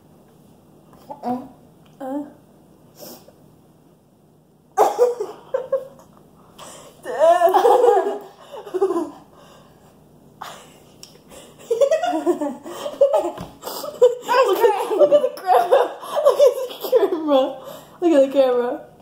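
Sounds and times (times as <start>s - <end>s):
girls laughing: 4.8s - 6.1s, 7.0s - 9.4s, 10.4s - 17.4s.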